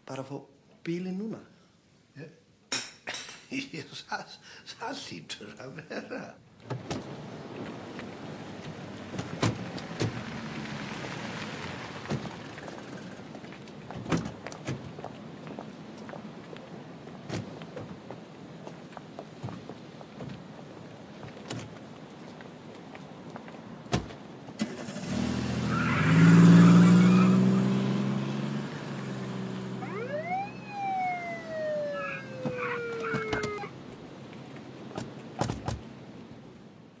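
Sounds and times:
car engine revving past: 0:09.8 - 0:13.0, 0:24.7 - 0:33.6
police siren: 0:29.8 - 0:33.8.

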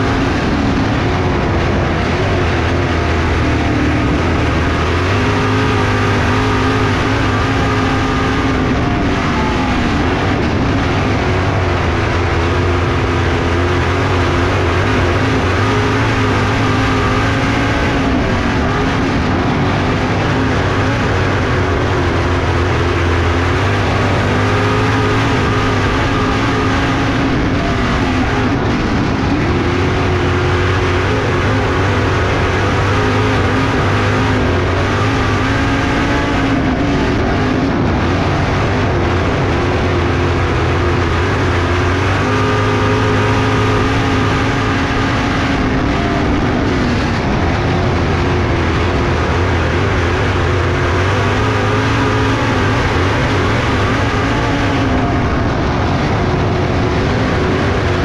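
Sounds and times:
loud rushing noise: 0:00.0 - 0:58.0
race car engine: 0:00.0 - 0:58.0.

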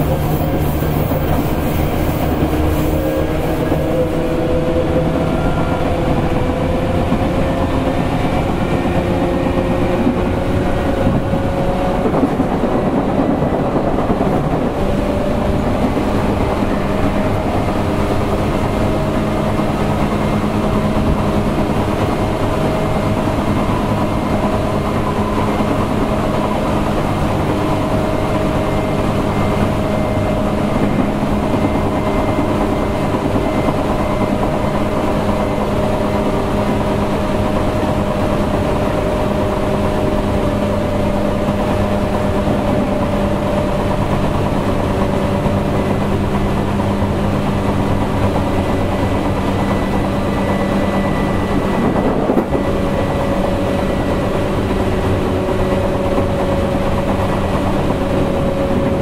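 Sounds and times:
train wheels rumbling: 0:00.0 - 0:59.0.

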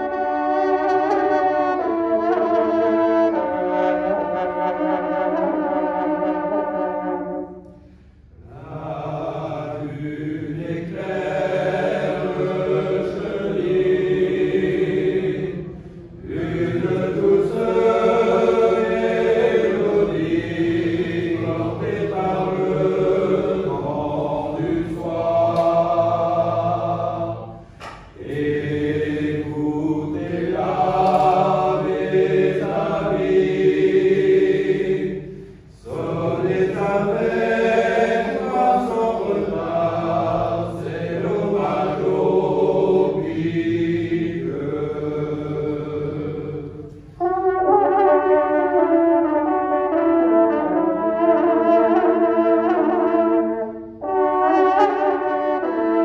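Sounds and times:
men's choir singing: 0:08.4 - 0:47.7.

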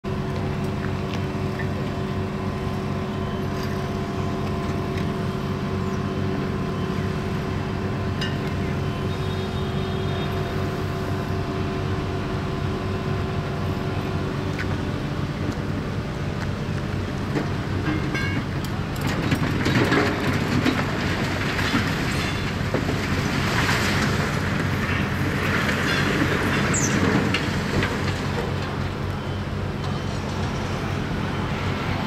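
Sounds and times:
diesel engine idling: 0:00.1 - 0:19.0.

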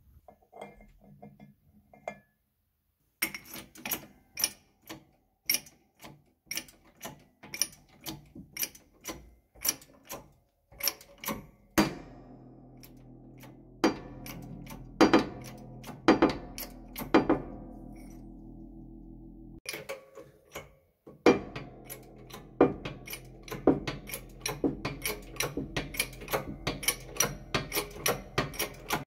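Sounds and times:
hammer striking metal: 0:11.8 - 0:19.8, 0:21.2 - 0:29.0
steady hum: 0:11.9 - 0:19.6, 0:21.4 - 0:29.0.

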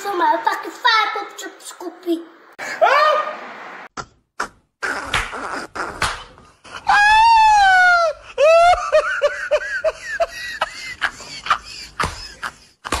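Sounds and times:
man laughing hard: 0:06.6 - 0:13.0.

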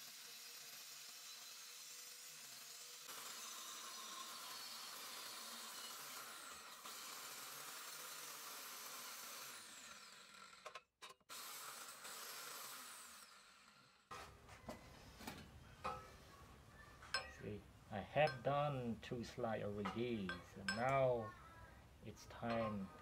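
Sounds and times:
angle grinder cutting steel: 0:00.0 - 0:14.1, 0:17.2 - 0:17.4, 0:18.2 - 0:21.2
sharp metal clink: 0:17.1 - 0:17.4, 0:18.2 - 0:18.8, 0:19.8 - 0:21.2.

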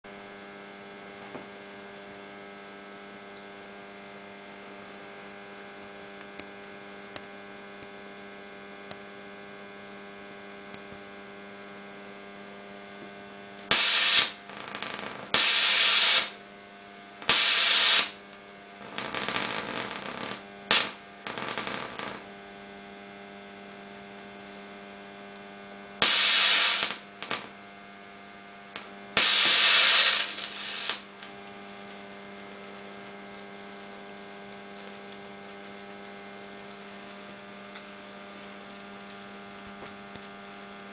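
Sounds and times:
steady electrical hum: 0:00.1 - 0:40.9
loud rushing hisses of discharge: 0:13.7 - 0:14.4, 0:15.4 - 0:16.3, 0:17.3 - 0:18.1, 0:26.0 - 0:27.0, 0:29.2 - 0:31.0
electrical crackling: 0:13.7 - 0:16.4, 0:17.2 - 0:22.4, 0:26.0 - 0:27.6, 0:28.8 - 0:31.3, 0:34.4 - 0:37.3.

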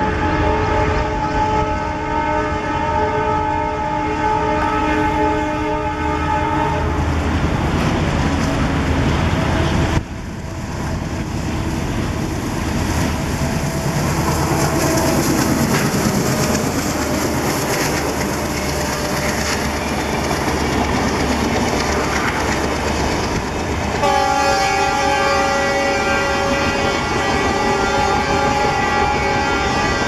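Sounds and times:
locomotive horn blast: 0:00.0 - 0:07.1, 0:24.0 - 0:30.0
diesel locomotive engine under load: 0:00.0 - 0:30.0
train wheels clacking on rail joints: 0:11.0 - 0:24.8.

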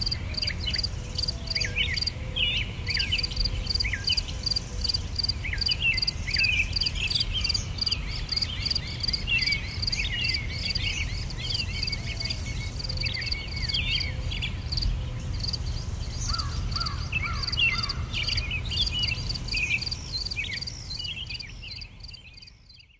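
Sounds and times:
crickets chirping: 0:00.0 - 0:02.2, 0:02.9 - 0:22.9
small birds twittering: 0:00.0 - 0:22.9.

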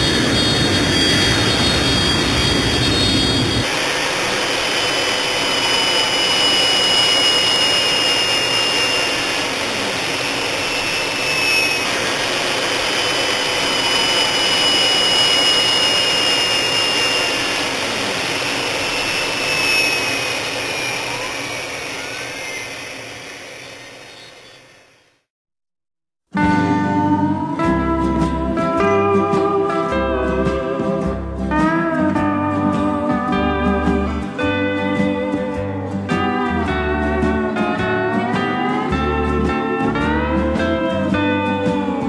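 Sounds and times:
whine sliding down in pitch: 0:00.0 - 0:25.1
jet engines whining: 0:00.0 - 0:25.3.

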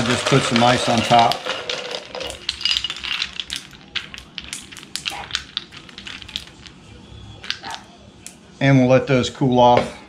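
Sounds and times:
ice cubes clinking: 0:00.0 - 0:06.8, 0:07.4 - 0:07.8.

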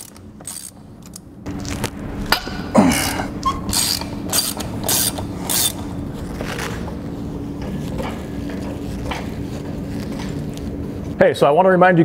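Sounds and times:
socket ratchet clicking: 0:00.0 - 0:01.2, 0:03.7 - 0:05.8.

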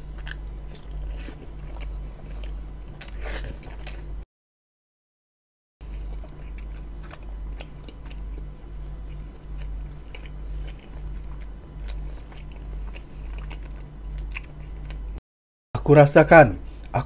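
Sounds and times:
chewing bread: 0:00.1 - 0:04.1, 0:05.8 - 0:15.1.

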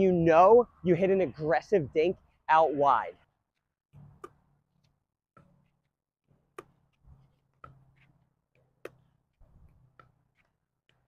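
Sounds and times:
paddles hitting plastic ball: 0:05.4 - 0:11.0
ball bouncing on court: 0:06.5 - 0:06.8.

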